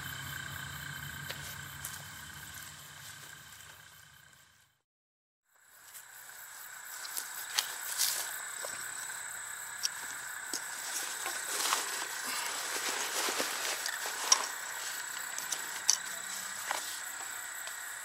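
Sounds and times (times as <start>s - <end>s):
insects trilling: 0.0s - 4.6s, 5.5s - 18.0s.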